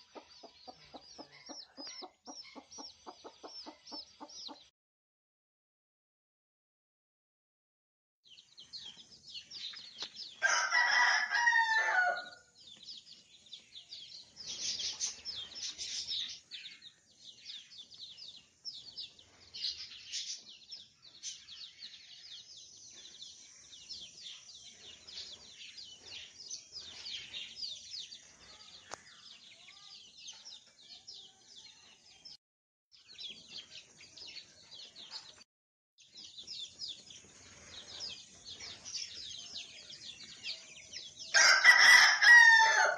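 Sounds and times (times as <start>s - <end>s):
chicks peeping: 0.0s - 4.7s, 8.3s - 32.4s, 33.0s - 35.4s, 36.0s - 42.9s
rooster crowing: 10.4s - 12.5s, 41.3s - 42.9s.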